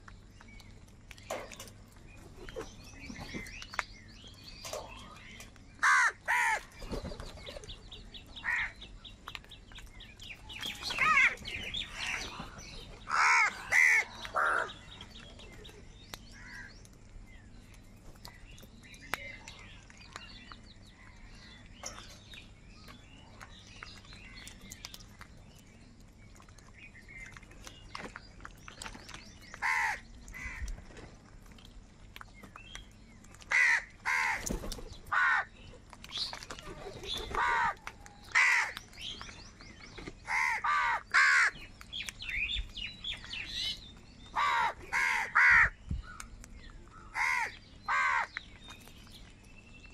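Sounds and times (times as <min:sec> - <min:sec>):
crows cawing: 0:05.8 - 0:06.8, 0:08.4 - 0:08.8, 0:13.1 - 0:14.8, 0:29.6 - 0:30.7, 0:33.5 - 0:34.5, 0:35.1 - 0:35.5, 0:37.4 - 0:38.8, 0:40.3 - 0:41.6, 0:44.4 - 0:45.8, 0:47.1 - 0:48.3.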